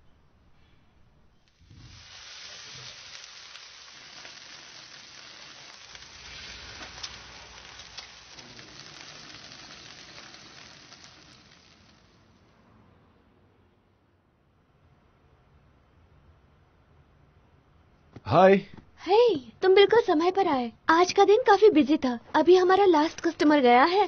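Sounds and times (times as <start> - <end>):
food sizzling on a griddle: 1.4 - 12.5.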